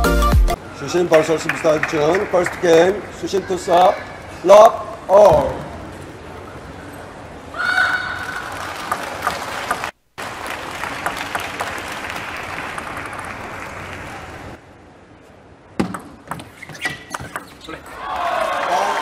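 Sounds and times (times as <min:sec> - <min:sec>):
crowd applauding: 0:01.4 - 0:03.0, 0:08.3 - 0:14.6, 0:18.0 - 0:19.0.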